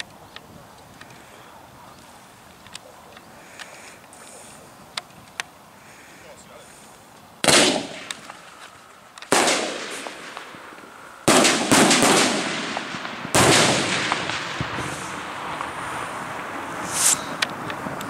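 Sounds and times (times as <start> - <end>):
sharp crack: 7.1 - 18.0
firework shells bursting with bangs: 7.4 - 17.6.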